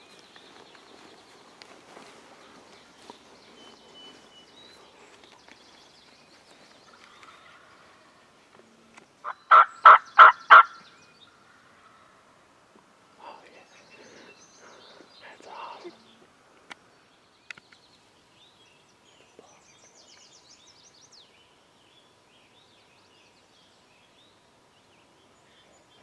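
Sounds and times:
wild turkey gobbling: 6.9 - 8.2, 9.2 - 10.8.

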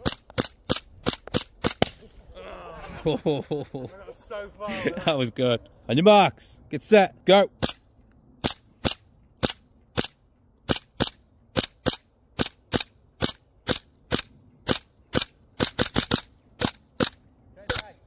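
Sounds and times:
airsoft pistol firing: 0.0 - 2.0, 8.4 - 17.9.

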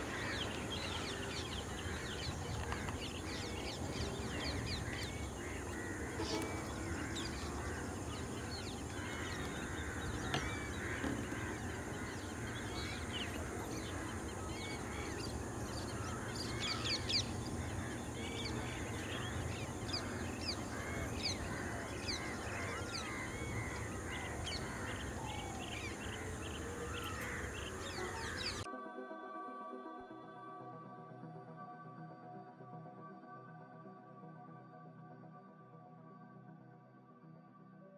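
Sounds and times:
birds chirping and whistling: 0.0 - 28.7
low outdoor rumble: 0.0 - 28.7.

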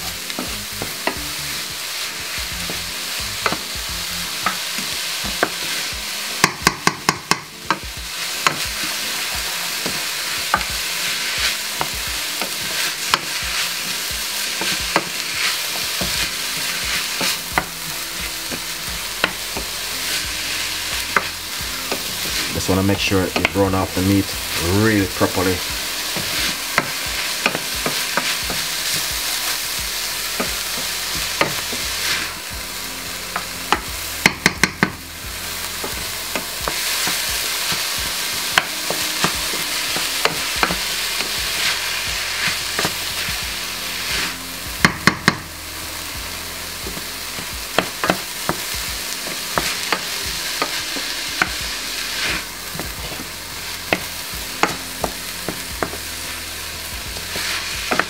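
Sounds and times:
meat and onions sizzling: 0.0 - 58.0
spoon knocking on pan: 6.4 - 10.8, 26.2 - 29.1, 30.4 - 31.8, 33.4 - 35.0, 38.5 - 40.8, 44.8 - 45.5, 47.7 - 50.0, 53.9 - 56.0.

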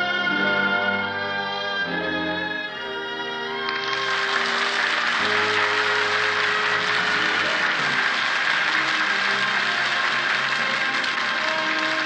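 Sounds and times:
orchestral music: 0.0 - 12.0
audience applause: 3.6 - 12.0.

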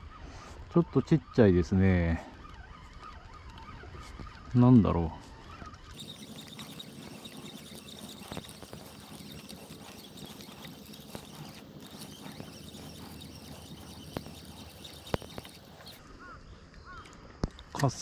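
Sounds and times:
fishing reel being cranked: 5.9 - 16.0.

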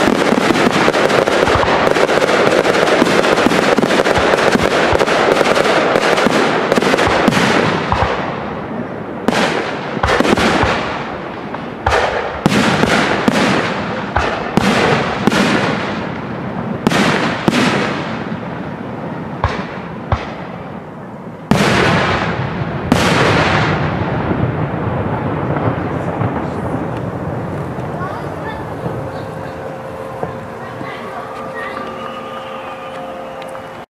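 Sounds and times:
firework shells bursting: 0.0 - 8.4
firework crackle: 0.0 - 33.9.

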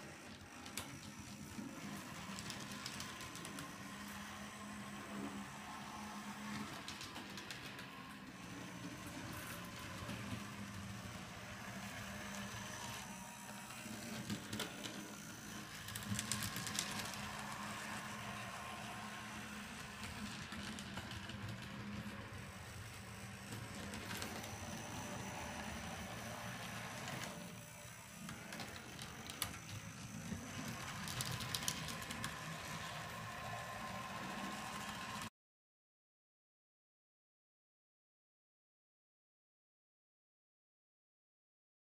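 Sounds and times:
model streetcar motor hum: 0.0 - 35.3
wheels clicking on track: 14.0 - 35.3.

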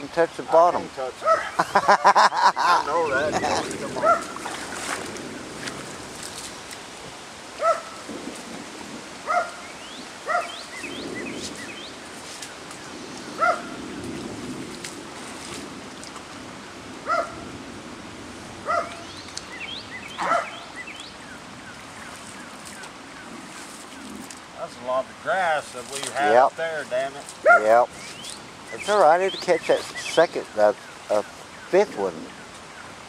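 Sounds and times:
floodwater rushing in creek: 0.0 - 33.0
dog barking: 1.2 - 1.5, 4.0 - 4.4, 7.6 - 8.0, 9.3 - 9.6, 10.3 - 10.6, 13.4 - 13.8, 17.1 - 17.4, 18.6 - 19.0, 20.2 - 20.7, 27.4 - 27.7.

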